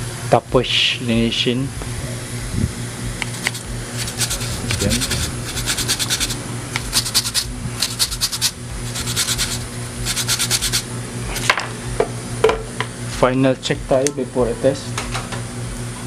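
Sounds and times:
steady low hum: 0:00.0 - 0:16.0
brush scrubbing circuit board: 0:03.2 - 0:10.9.

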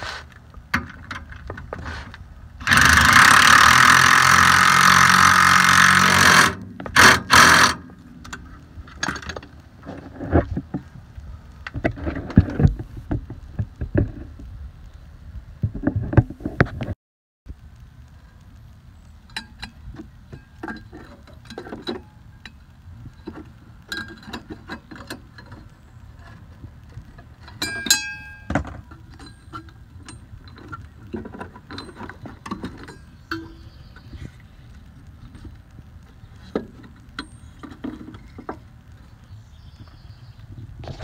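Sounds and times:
steady low rumble: 0:05.2 - 0:16.9, 0:17.5 - 0:41.0
ringing metallic clink: 0:27.6 - 0:28.5.

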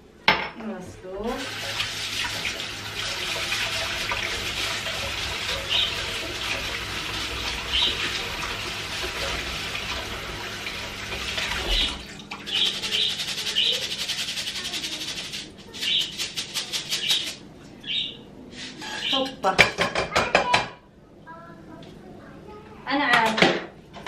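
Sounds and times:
tap running water over rice: 0:01.3 - 0:12.6.

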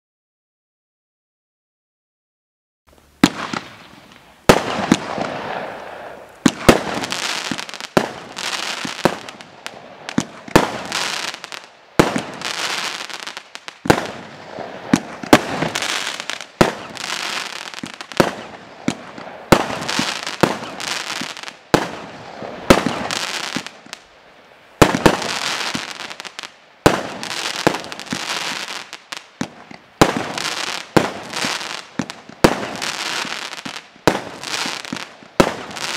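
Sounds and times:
firework hiss and crackling: 0:02.9 - 0:35.9
firework bangs: 0:03.2 - 0:24.1, 0:24.8 - 0:35.9.

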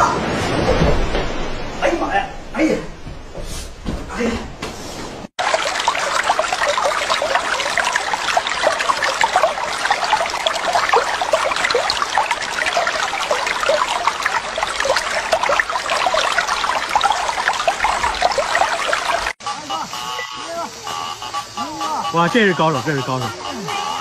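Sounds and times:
water splashing and trickling: 0:05.3 - 0:24.0.

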